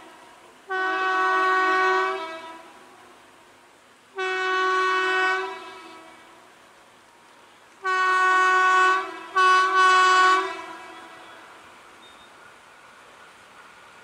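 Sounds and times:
locomotive horn blasts: 0.7s - 2.8s, 4.2s - 6.4s, 7.8s - 12.3s.

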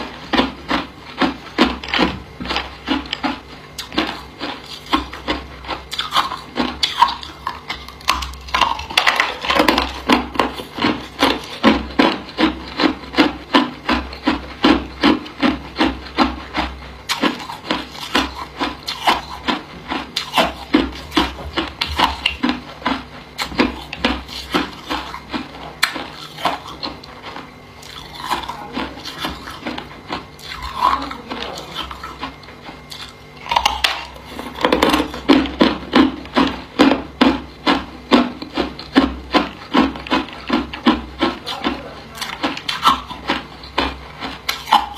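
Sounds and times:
person crunching ice: 23.4s - 27.0s, 27.8s - 29.6s, 30.4s - 32.3s, 38.8s - 44.9s.

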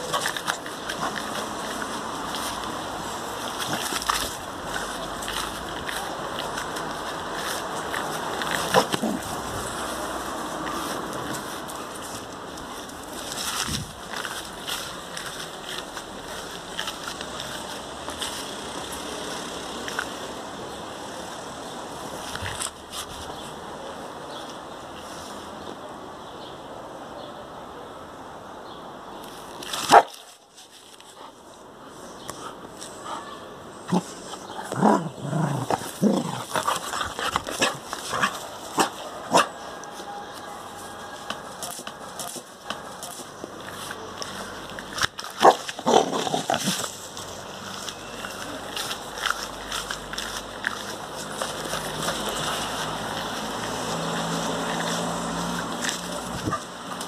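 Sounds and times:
dog growling in play: 8.5s - 9.8s, 33.9s - 38.3s
wind on microphone: 13.5s - 14.0s.

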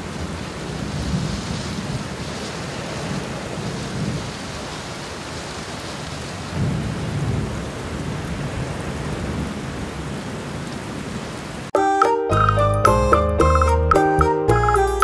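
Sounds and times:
low rolling thunder: 0.0s - 11.2s
steady rain hiss: 0.0s - 11.7s.

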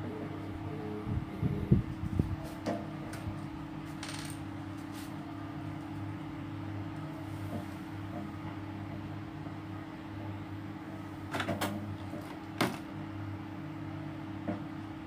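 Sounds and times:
low hum: 0.0s - 11.2s.

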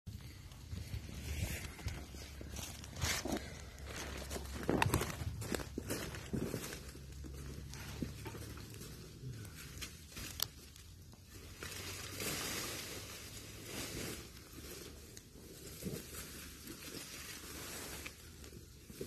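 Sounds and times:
dry leaves rustling and crunching: 0.6s - 19.0s.

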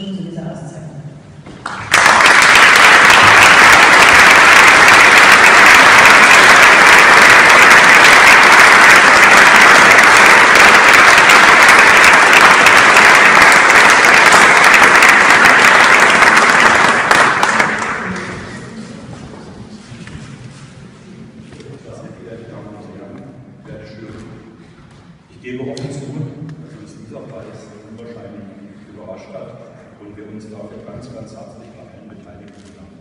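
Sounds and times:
audience applauding: 1.6s - 18.7s.

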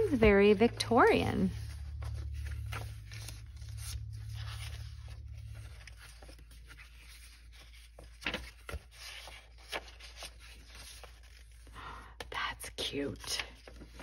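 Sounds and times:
steady low hum: 0.0s - 8.4s
paper pages turning: 0.0s - 11.8s, 12.8s - 14.0s.

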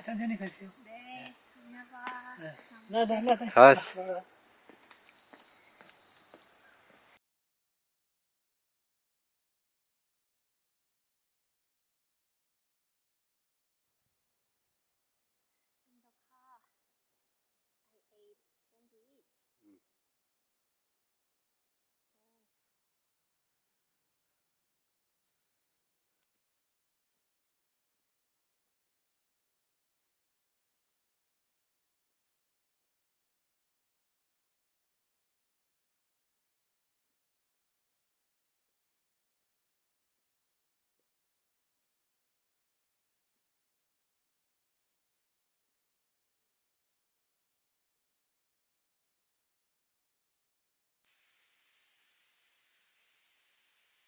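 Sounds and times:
high-pitched insect chorus: 0.0s - 7.2s, 22.5s - 54.0s.

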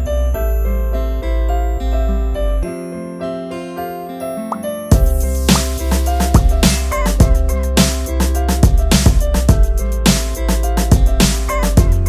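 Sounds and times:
music with deep bass line: 4.9s - 12.0s.

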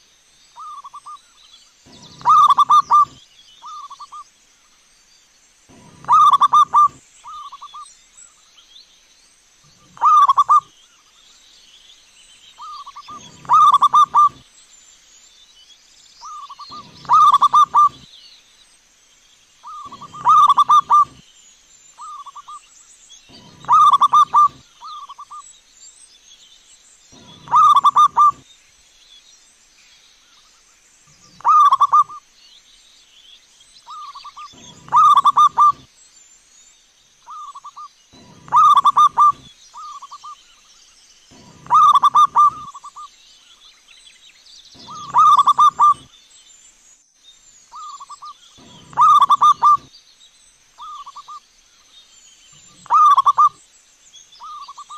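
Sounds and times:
dove cooing: 1.9s - 4.0s, 5.7s - 7.7s, 9.8s - 10.7s, 12.6s - 14.4s, 16.3s - 18.0s, 19.7s - 21.2s, 23.3s - 25.2s, 27.2s - 28.4s, 31.3s - 32.2s, 33.9s - 35.9s, 37.3s - 40.1s, 41.3s - 43.0s, 44.8s - 46.1s, 47.8s - 49.9s, 52.6s - 53.6s.

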